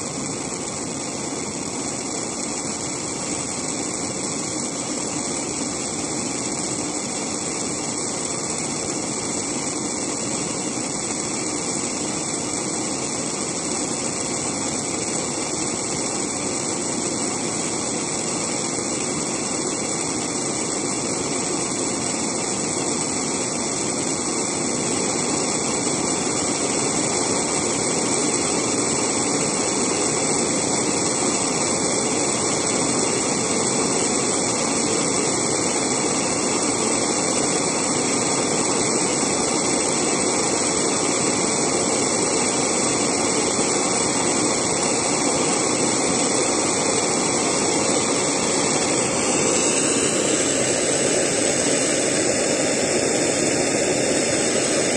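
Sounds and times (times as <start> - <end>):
blowtorch flame hissing: 0.0 - 54.9.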